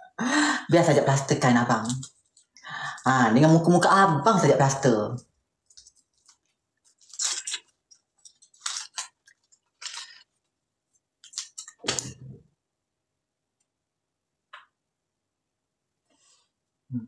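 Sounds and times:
wrapper crinkling and tearing: 5.7s - 10.5s, 11.2s - 12.1s.

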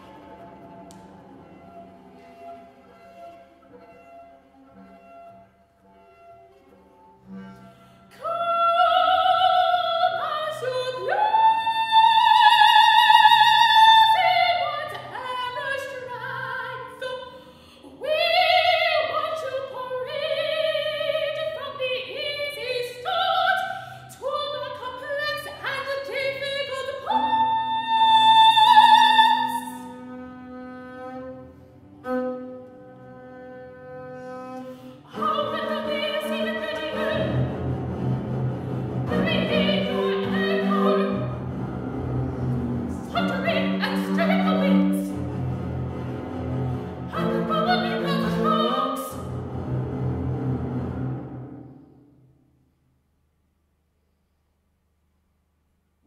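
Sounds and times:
operatic soprano singing: 8.1s - 29.9s, 35.0s - 37.6s, 39.0s - 41.5s, 42.9s - 45.2s, 47.0s - 49.3s
bowed double bass: 29.9s - 52.0s.

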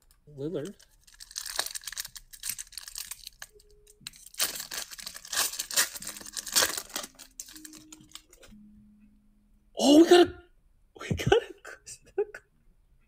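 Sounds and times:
foil wrapper tearing and crinkling: 0.6s - 8.4s.

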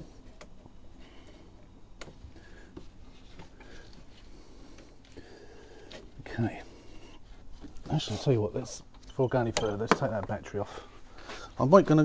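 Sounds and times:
faint squeaks: 7.9s - 9.9s.

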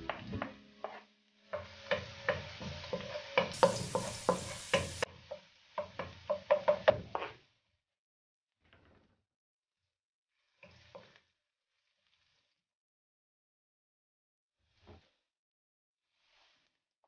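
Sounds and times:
spoon tapping and scraping pan: 0.1s - 7.4s
light sizzle of oil: 0.1s - 7.8s, 10.3s - 12.7s, 16.0s - 16.9s.

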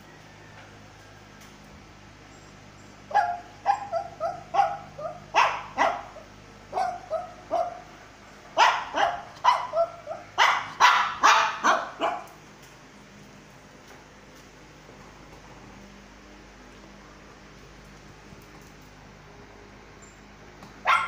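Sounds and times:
small dog yapping: 3.1s - 7.9s, 8.6s - 12.3s.

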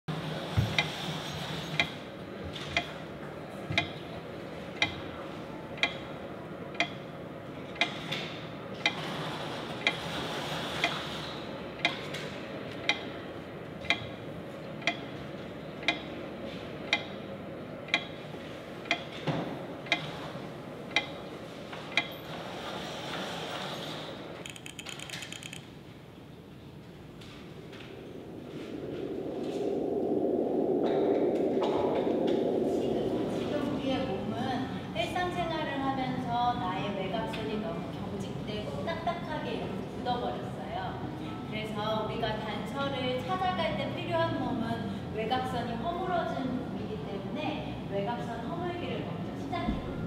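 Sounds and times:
soft background hum: 0.1s - 50.0s
steady ticking: 5.8s - 6.1s, 6.7s - 7.0s, 12.8s - 13.1s, 13.8s - 14.1s, 14.8s - 15.2s, 15.8s - 16.2s, 16.8s - 17.2s, 17.8s - 18.2s, 18.8s - 19.2s, 20.9s - 21.3s.

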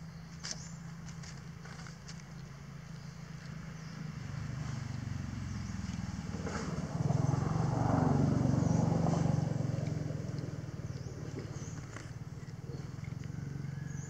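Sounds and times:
vehicle engine passing by: 3.3s - 14.0s.

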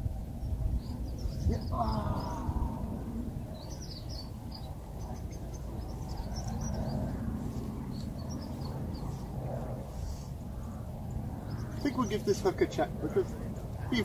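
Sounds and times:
low steady rumble: 0.0s - 14.0s
small birds chirping: 0.3s - 14.0s.

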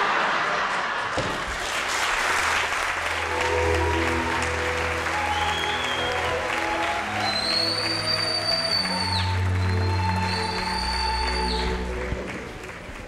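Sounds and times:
audience applauding: 0.0s - 13.0s
music with sustained notes: 2.8s - 13.0s.

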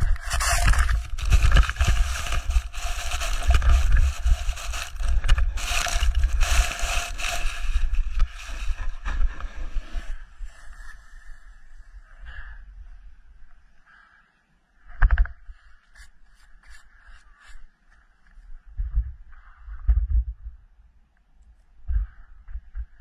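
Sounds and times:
snow and board scraping: 0.0s - 11.8s.

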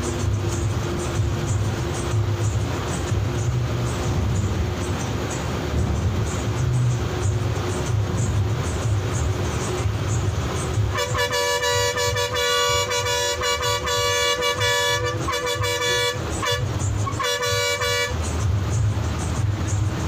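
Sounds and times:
diesel bus engine rumble: 0.0s - 20.0s
bus horn blast: 10.4s - 18.4s.

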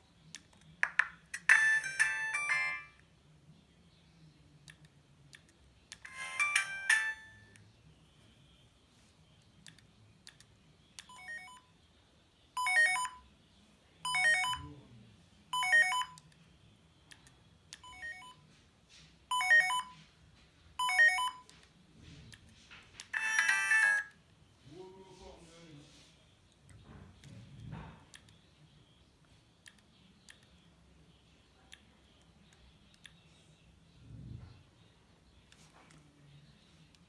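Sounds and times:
phone ringtone jingle: 1.3s - 3.0s, 6.0s - 7.5s, 12.6s - 13.2s, 14.1s - 14.6s, 19.3s - 20.0s, 20.8s - 21.4s, 23.2s - 24.2s
repeating phone beeps: 11.1s - 11.7s, 12.6s - 13.2s, 14.1s - 14.7s, 17.8s - 18.4s, 19.3s - 20.0s, 20.8s - 21.5s, 23.2s - 24.2s.

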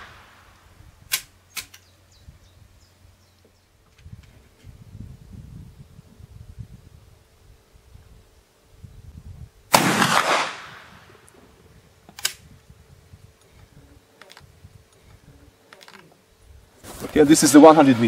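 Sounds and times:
rifle clicks: 1.1s - 1.9s, 12.1s - 12.4s
rifle shot: 9.7s - 11.1s.

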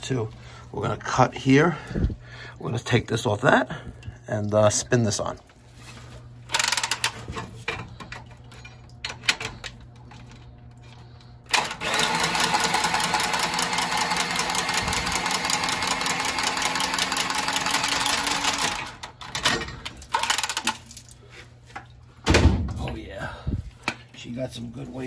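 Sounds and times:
tubing cutter motor whirring: 11.5s - 19.1s.

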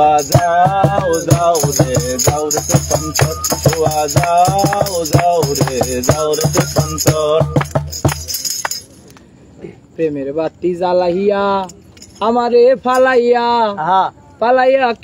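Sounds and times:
folk melody with bending notes: 0.0s - 9.1s
hand percussion beat: 0.0s - 9.1s
jingling tambourine: 0.0s - 9.2s, 11.5s - 13.4s.

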